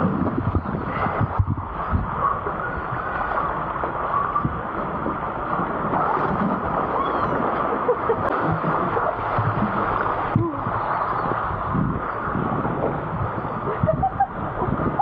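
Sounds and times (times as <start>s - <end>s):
water rushing down slide: 0.0s - 15.0s.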